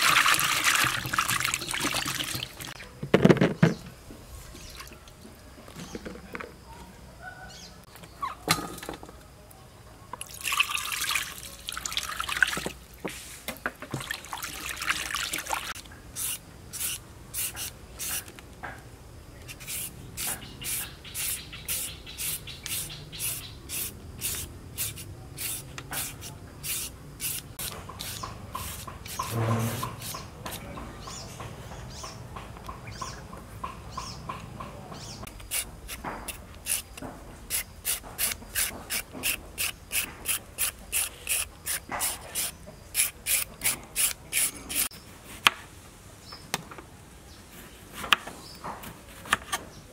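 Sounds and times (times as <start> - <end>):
water splashing in metal strainer: 0.0 - 2.8, 14.0 - 15.8
blade scraping papaya: 16.2 - 18.3, 19.5 - 30.7, 35.4 - 44.9.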